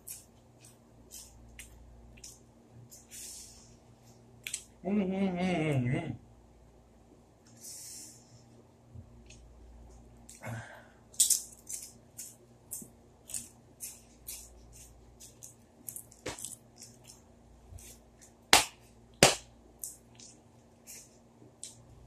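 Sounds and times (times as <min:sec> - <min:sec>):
chips crunching while chewed: 0:11.2 - 0:17.9.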